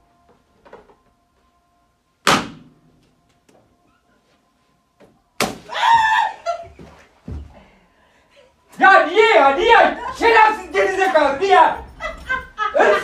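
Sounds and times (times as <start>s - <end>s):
balloon popping: 2.2s - 2.7s.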